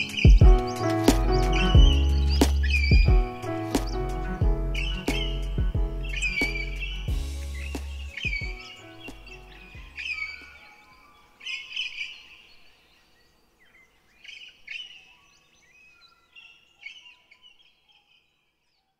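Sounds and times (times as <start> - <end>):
low music bass line: 0.0 - 10.1
birds chirping: 0.0 - 18.4.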